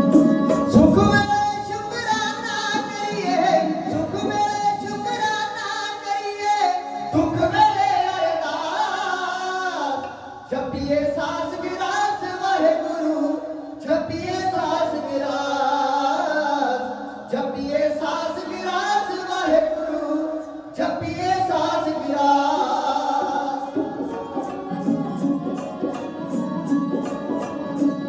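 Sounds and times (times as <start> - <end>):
bowed string instrument: 0.0 - 5.5, 21.8 - 28.0
men singing: 0.0 - 28.0.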